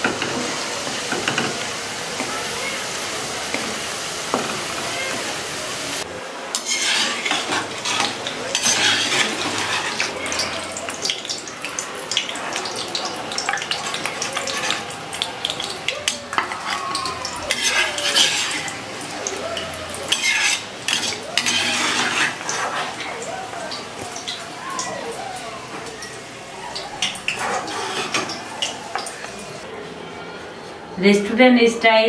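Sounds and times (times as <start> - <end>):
fries sizzling in hot oil: 0.0 - 29.7
steel spoon clinking and scraping: 6.6 - 11.1, 17.4 - 18.8, 20.1 - 23.0.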